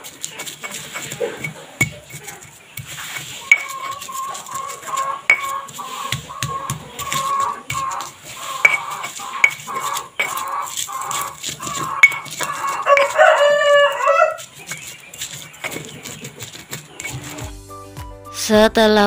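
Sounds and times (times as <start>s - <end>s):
pestle knocking in stone mortar: 0.0s - 17.5s
rooster crowing: 11.8s - 14.5s.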